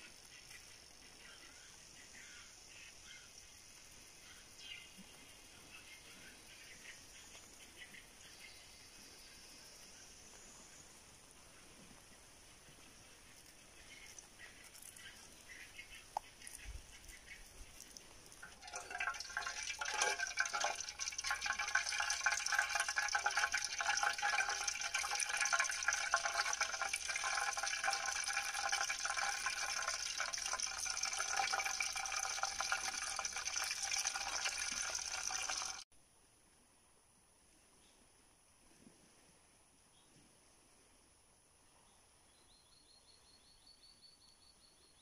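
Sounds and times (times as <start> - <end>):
pot hissing over campfire: 18.4 - 35.8.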